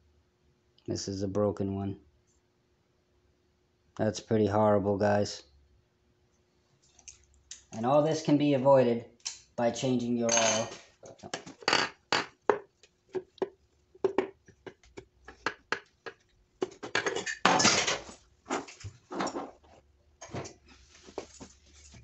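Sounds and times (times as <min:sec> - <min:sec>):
metal parts clattering: 0:17.0 - 0:19.5.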